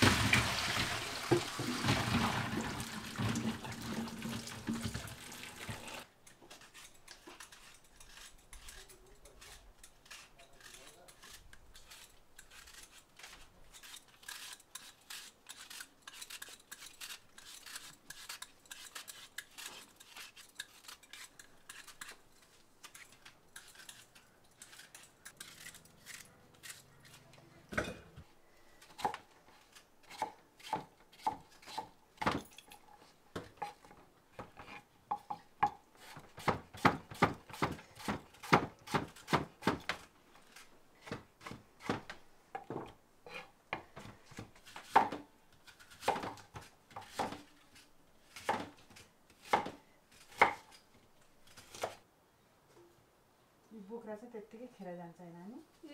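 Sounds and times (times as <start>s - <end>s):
peelers scraping apples: 6.4s - 27.5s
knife chopping on wooden board: 34.4s - 40.0s, 42.8s - 45.2s, 46.0s - 47.5s, 48.4s - 48.8s.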